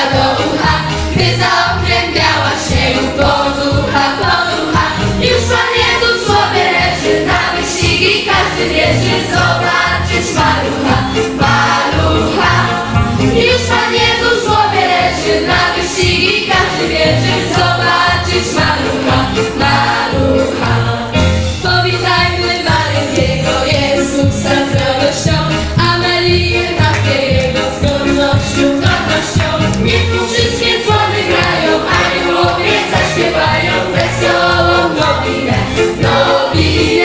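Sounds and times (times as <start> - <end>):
children's choir singing carol: 0.0 - 37.0
instrumental accompaniment with beat: 0.0 - 37.0.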